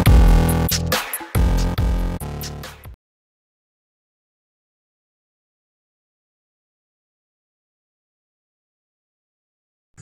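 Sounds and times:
electronic music with heavy beat: 0.0s - 3.0s.

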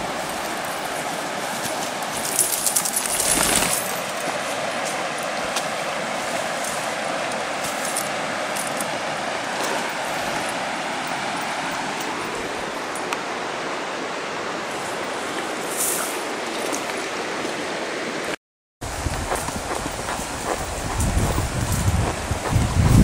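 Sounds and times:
river rushing over rapids: 0.0s - 23.0s.

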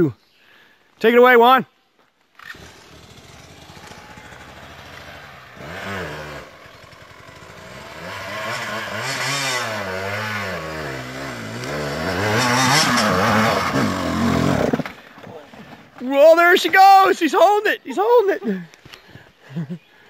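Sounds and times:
dirt bike engine revving: 2.4s - 15.0s.

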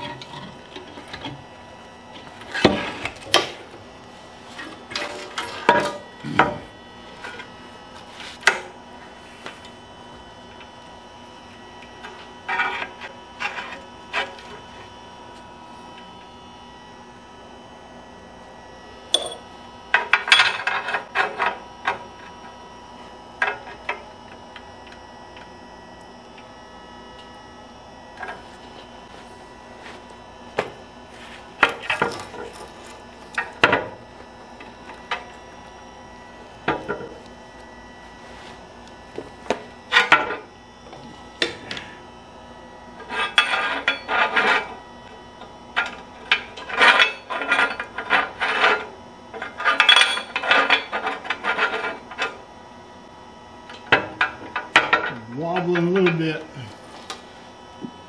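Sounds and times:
metal parts clanking on workbench: 19.1s - 19.4s.

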